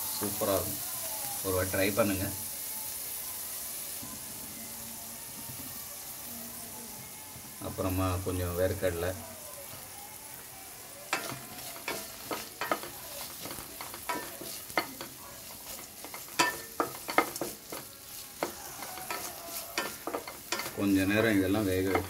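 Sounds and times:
spices sizzling in a pan: 0:00.0 - 0:22.0
spoon scraping and tapping pan: 0:11.1 - 0:22.0.

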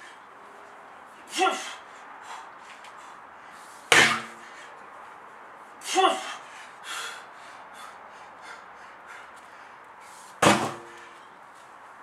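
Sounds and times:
man grunting: 0:01.3 - 0:01.8, 0:05.9 - 0:06.4
sledgehammer thud on tyre: 0:03.9 - 0:04.4, 0:10.4 - 0:11.0.

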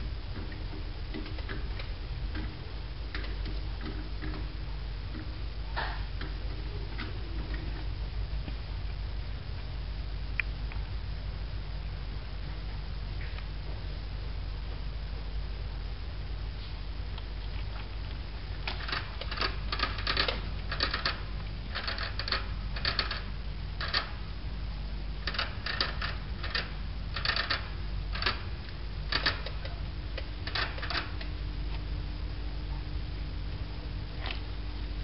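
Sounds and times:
steady low hum: 0:00.0 - 0:35.0
mice clicking at cage bars: 0:00.3 - 0:08.0, 0:18.1 - 0:24.5, 0:25.2 - 0:31.9.

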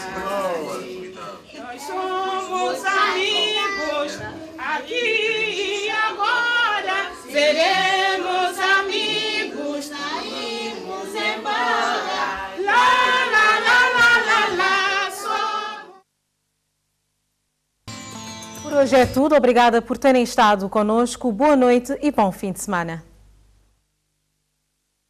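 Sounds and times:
children singing: 0:00.0 - 0:16.0
woman singing: 0:01.6 - 0:11.6.

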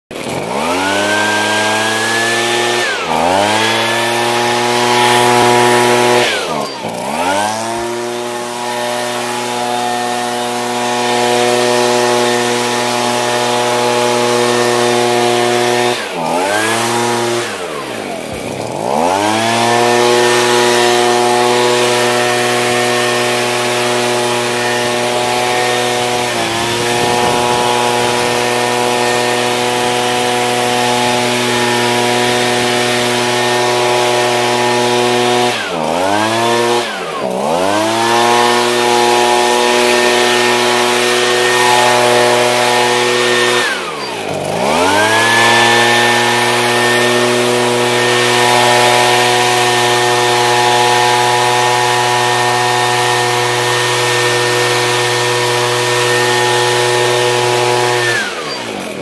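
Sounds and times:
leaf blower engine revving: 0:00.1 - 0:59.0.

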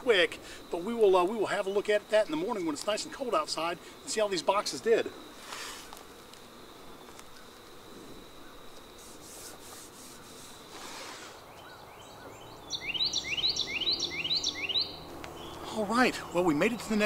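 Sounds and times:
tape ripping off roll: 0:09.0 - 0:11.4
bird chirping: 0:10.0 - 0:17.0.

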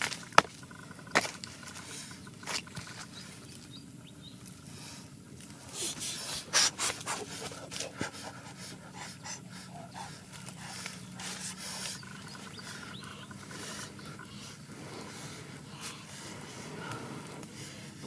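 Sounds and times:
breathy puffs of air: 0:04.7 - 0:18.0
crackling wood fire: 0:10.2 - 0:18.0.

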